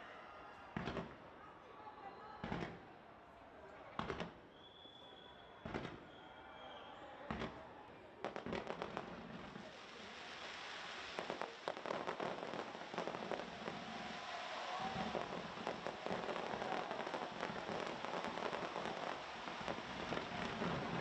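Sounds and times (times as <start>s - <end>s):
fireworks exploding: 5.7s - 6.0s, 8.2s - 21.0s.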